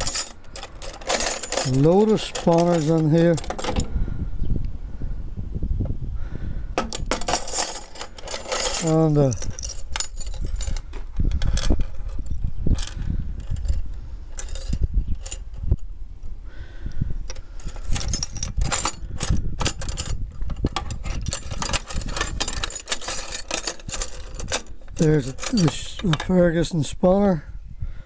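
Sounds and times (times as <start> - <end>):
keyring jangling: 0.0 - 3.9, 6.9 - 13.8, 14.4 - 15.6, 17.3 - 26.1
spanners rattling in metal toolbox: 0.0 - 3.9, 6.8 - 15.7, 17.3 - 26.6.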